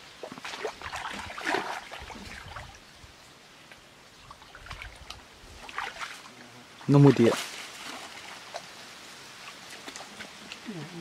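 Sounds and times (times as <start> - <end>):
bare feet splashing in muddy water: 0.2 - 2.8, 4.2 - 6.3, 7.0 - 8.8, 9.4 - 11.0.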